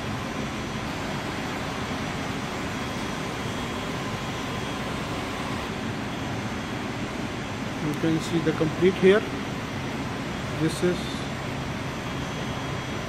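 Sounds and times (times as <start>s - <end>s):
faint steady whine: 0.0s - 13.0s.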